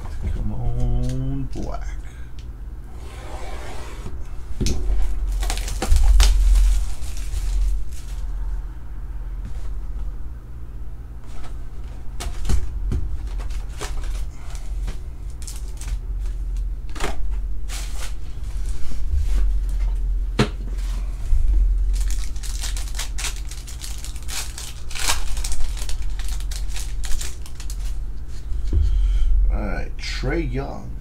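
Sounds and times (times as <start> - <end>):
card packs tapping and clicking: 5.3 - 6.4
foil wrapper crinkling and tearing: 5.3 - 8.2, 15.3 - 16.6, 21.9 - 28.0.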